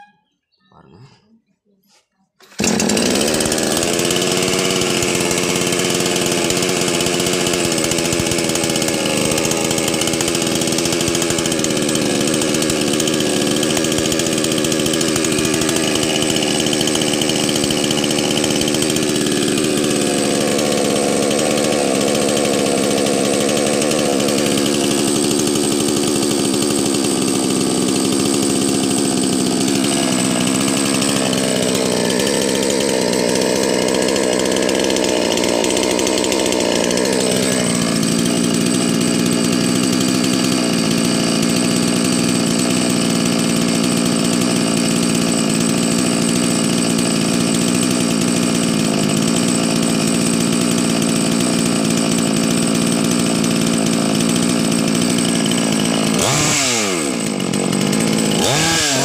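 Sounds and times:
chainsaw engine running: 2.4s - 59.0s.

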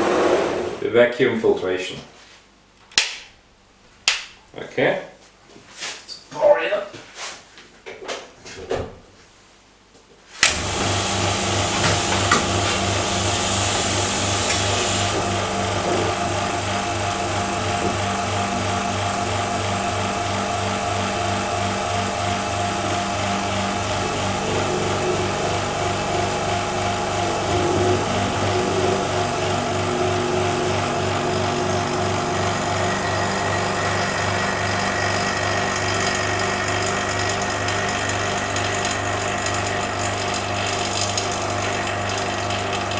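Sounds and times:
vacuum pump motor hum: 10.4s - 42.9s.

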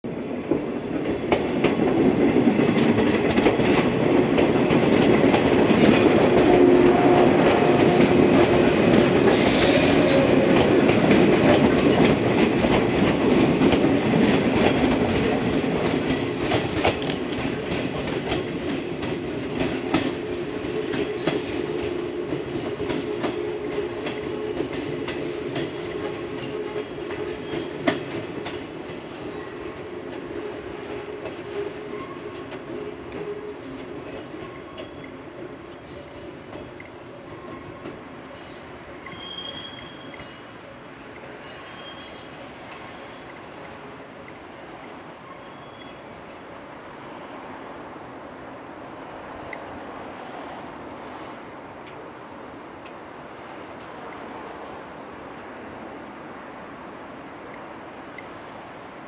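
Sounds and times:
electric train passing: 0.1s - 59.0s
wheels clicking over rail joints: 0.5s - 9.6s, 10.2s - 44.9s.

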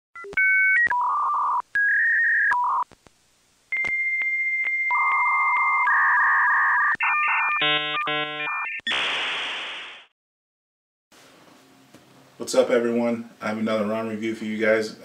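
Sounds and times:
dialing beeps: 0.2s - 2.8s
warbling buzzing modem handshake tones: 0.2s - 2.8s, 3.7s - 9.1s.

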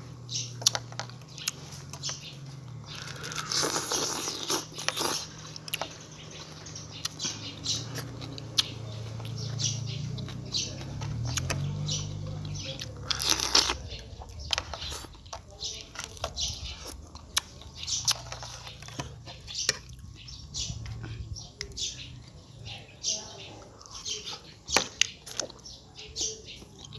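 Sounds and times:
sucking and slurping: 2.6s - 9.6s
crab shell crunching: 2.7s - 5.9s, 12.9s - 20.2s.

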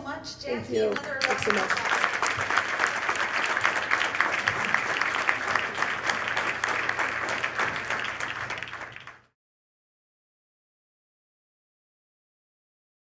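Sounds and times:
audience applauding: 0.9s - 9.3s.

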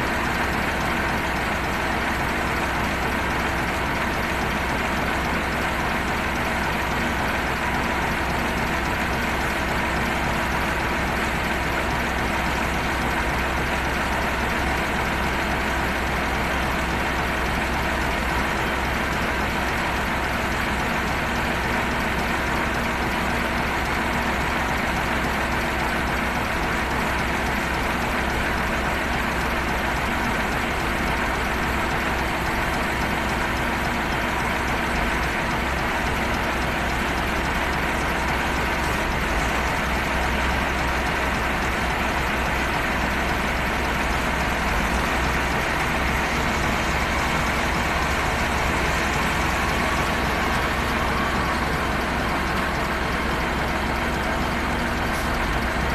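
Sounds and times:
heavy diesel engine running: 0.0s - 55.9s.

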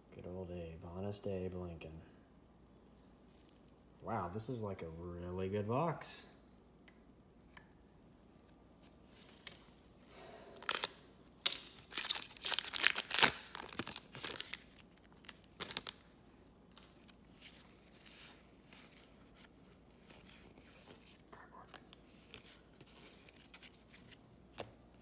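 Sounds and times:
wrapper crinkling and ripping: 10.6s - 18.3s.

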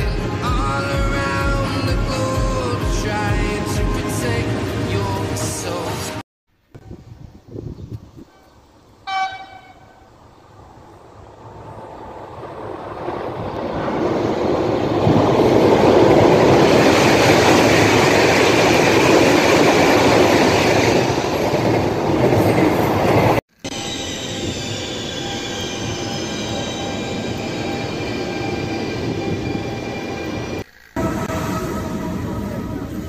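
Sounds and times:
passing train rumbling: 0.0s - 6.2s, 9.0s - 33.0s
train horn: 9.1s - 10.0s, 31.0s - 33.0s.

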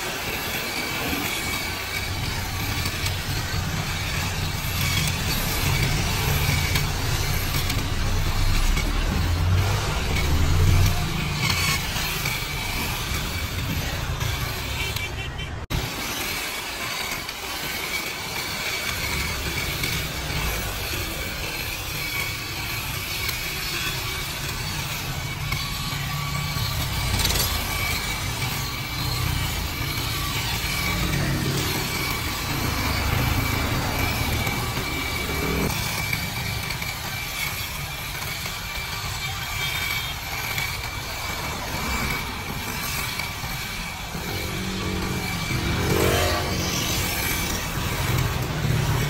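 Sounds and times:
hedge trimmer whining: 0.0s - 49.0s
road traffic rumble: 0.0s - 49.0s.

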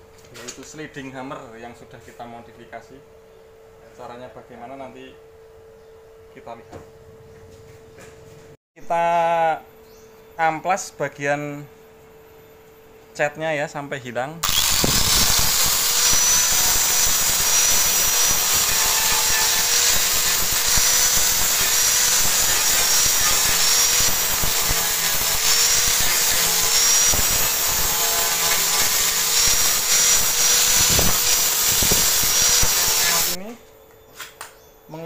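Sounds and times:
angle grinder sanding metal: 14.4s - 33.4s.

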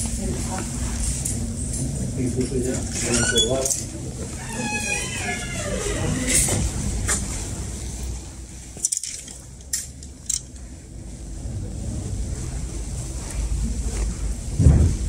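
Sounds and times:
low rumble: 9.5s - 15.0s.

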